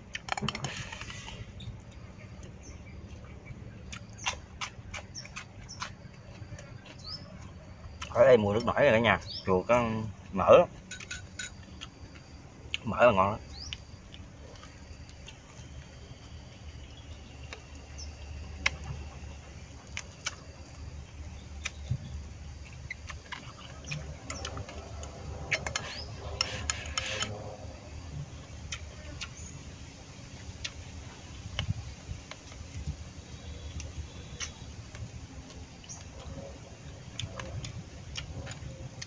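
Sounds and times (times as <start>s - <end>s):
chewing: 0.0s - 8.8s, 11.0s - 12.9s, 13.6s - 27.6s, 33.5s - 39.0s.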